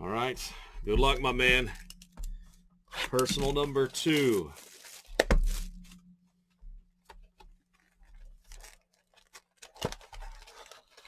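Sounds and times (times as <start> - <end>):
cardboard and wrapping rustling: 3.0 - 6.1, 7.2 - 11.0.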